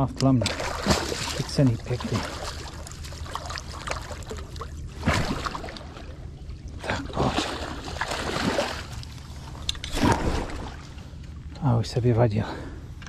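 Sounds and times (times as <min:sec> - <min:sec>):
fish splashing in water: 0:00.5 - 0:06.3, 0:07.1 - 0:09.2, 0:09.9 - 0:11.0.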